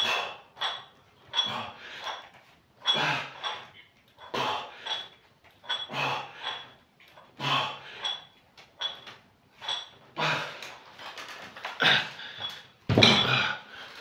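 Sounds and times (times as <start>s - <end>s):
iron weight plates clinking: 0.6s - 6.8s, 7.9s - 10.0s, 11.8s - 13.6s.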